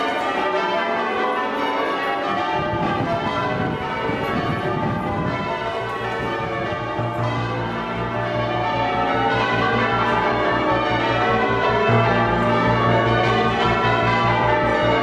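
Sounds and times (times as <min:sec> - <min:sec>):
church bells pealing: 0:00.0 - 0:15.0.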